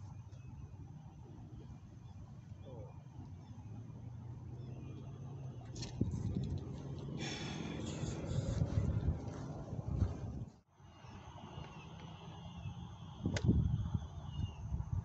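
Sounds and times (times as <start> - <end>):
low steady rumble: 0.0 - 10.7.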